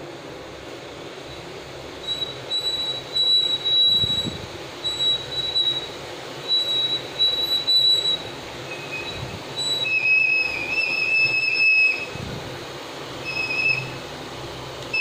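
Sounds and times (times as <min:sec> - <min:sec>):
dough frying in hot oil: 0:00.4 - 0:15.0
metal press squeaking: 0:02.0 - 0:12.2, 0:13.2 - 0:14.1.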